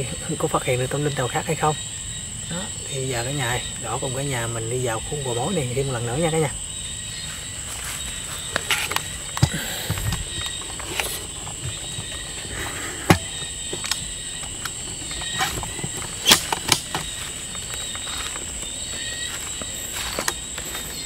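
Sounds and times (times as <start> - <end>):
night insects droning: 0.0 - 21.0
footsteps through dry leaves: 7.2 - 9.4, 14.8 - 21.0
twigs snapping: 8.4 - 20.9.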